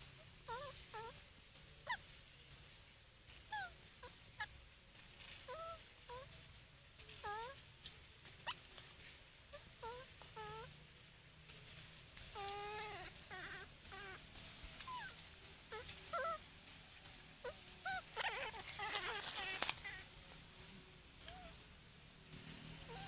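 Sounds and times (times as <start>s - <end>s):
baby monkey whimpering: 0.4s - 1.2s, 3.5s - 4.5s, 5.4s - 6.4s, 7.2s - 7.6s, 9.5s - 10.7s, 12.3s - 14.2s, 14.8s - 16.4s, 17.4s - 20.1s, 21.2s - 21.6s.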